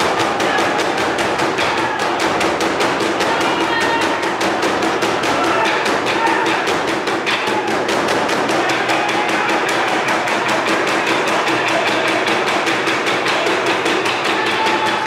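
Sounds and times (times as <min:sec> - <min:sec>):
drums beaten with sticks: 0:00.0 - 0:15.0.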